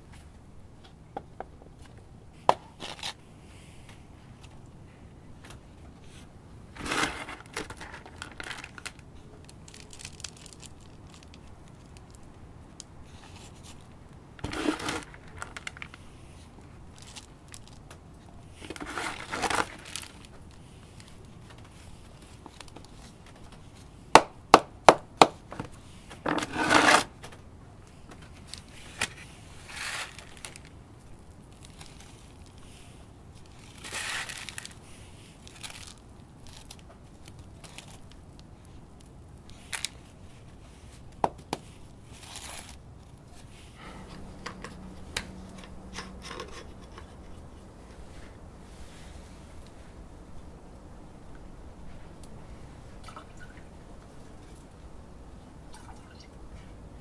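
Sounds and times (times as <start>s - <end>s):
potting mix crunching and rustling: 6.0s - 24.0s, 27.8s - 50.0s.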